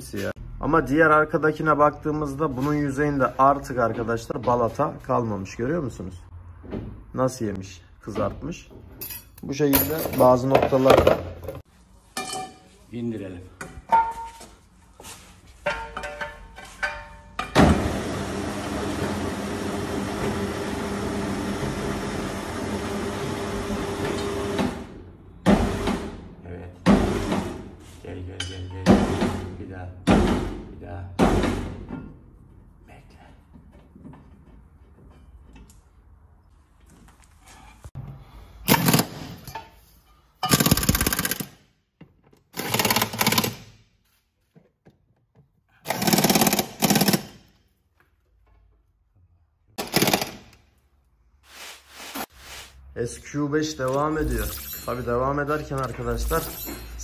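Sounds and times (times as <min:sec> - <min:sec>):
impact wrench hammering: 0:40.4 - 0:41.6, 0:42.6 - 0:43.6, 0:45.9 - 0:47.5, 0:49.8 - 0:50.6.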